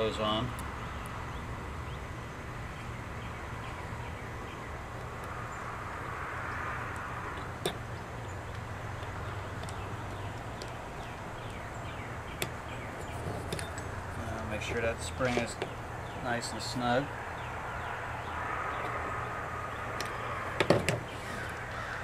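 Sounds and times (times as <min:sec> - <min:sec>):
small metal clicks: 0:06.5 - 0:11.6.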